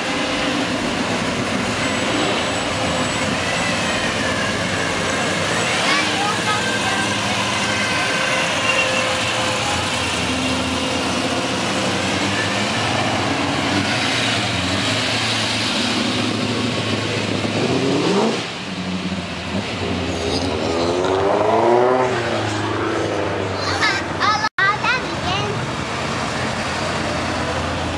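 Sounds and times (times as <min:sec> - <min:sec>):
car engines driving past: 0:00.0 - 0:24.4
engine revving sharply: 0:19.5 - 0:23.6.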